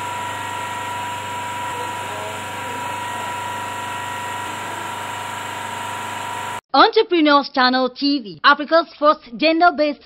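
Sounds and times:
machine-like hum: 0.0 - 6.6.

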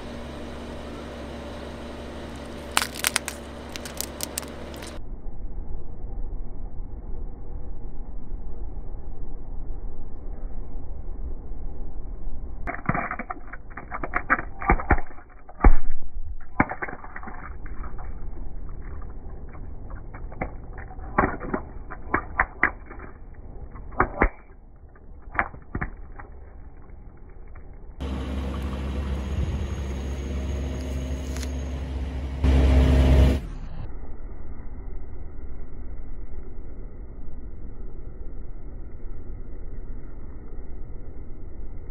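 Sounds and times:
low rumble of car rolling: 0.0 - 41.9
water beads popping under car tyre: 2.3 - 5.0, 12.7 - 28.1.

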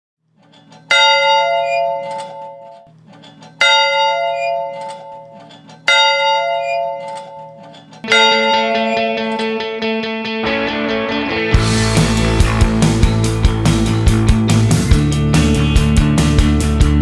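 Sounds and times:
bell-like tone ringing: 1.0 - 2.8, 6.4 - 9.4
music track: 8.1 - 17.0
low steady drone: 10.6 - 16.6.

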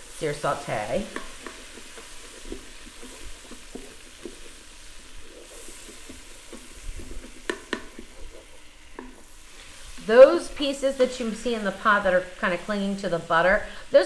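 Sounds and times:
wooden spoon scraping a pot: 0.0 - 13.7
butter sizzling in a pot: 0.0 - 14.0
spoon knocking on pot: 1.1 - 2.6, 6.0 - 8.3.

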